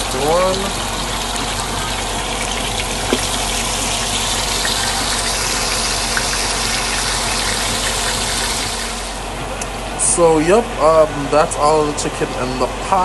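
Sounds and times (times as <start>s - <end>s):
chicken sizzling in oil: 0.0s - 9.2s.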